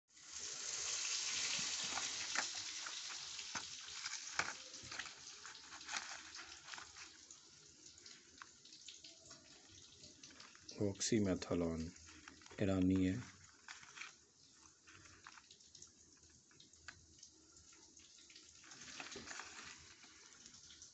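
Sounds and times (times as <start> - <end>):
cardboard box clicks and crackles: 1.4 - 7.1.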